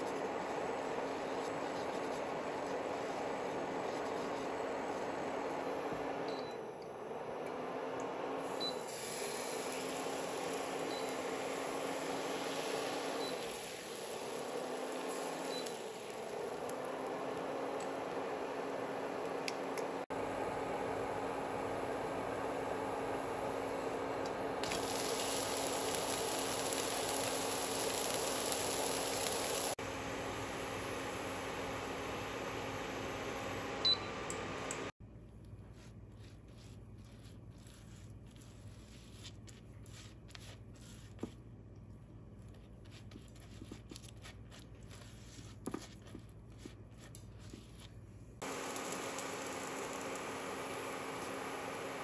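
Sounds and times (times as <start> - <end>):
cooktop fan noise: 0.0 - 52.0
batter hissing on hot pan: 8.9 - 16.8, 24.6 - 29.8, 48.4 - 52.0.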